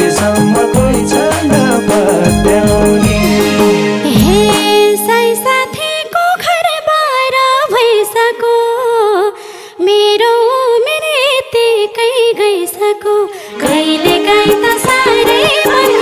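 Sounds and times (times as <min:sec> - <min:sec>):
live folk music with ornamented melody: 0:00.0 - 0:06.6, 0:13.4 - 0:16.0.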